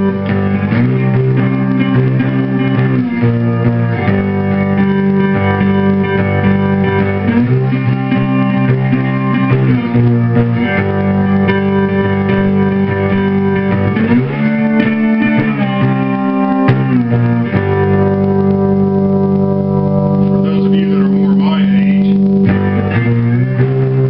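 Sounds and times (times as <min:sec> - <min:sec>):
slide guitar notes: 0:00.0 - 0:24.0
steady low drone: 0:00.0 - 0:24.0.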